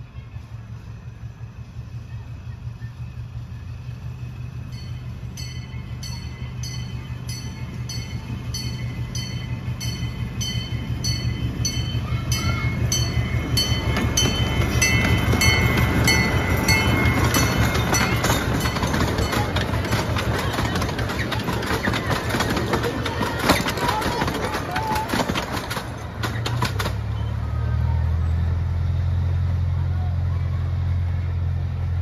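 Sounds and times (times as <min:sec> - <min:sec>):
locomotive engine humming: 0:00.0 - 0:32.0
locomotive bell clanging: 0:04.5 - 0:26.6.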